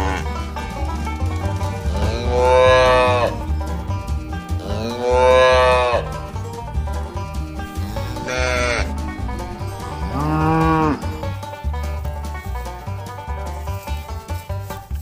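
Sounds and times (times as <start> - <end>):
cattle mooing: 0.0 - 3.6, 4.5 - 6.4, 7.4 - 11.8
background music with bass beat: 0.0 - 15.0.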